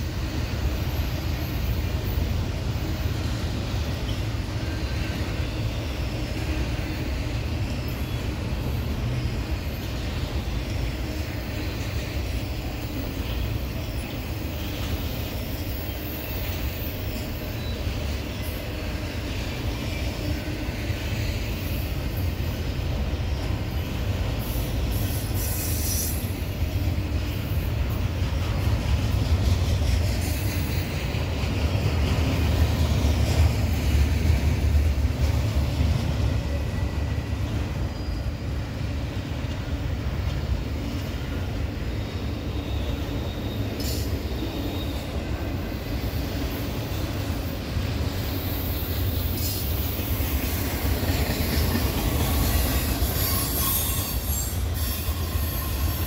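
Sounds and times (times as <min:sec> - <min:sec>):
freight train wheels rumbling: 0:00.0 - 0:56.0
high-pitched wheel squeals: 0:52.1 - 0:56.0.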